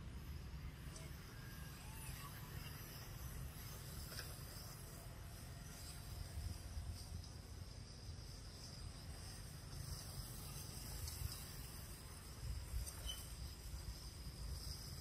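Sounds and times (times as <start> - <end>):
steady high hiss: 0.0 - 15.0.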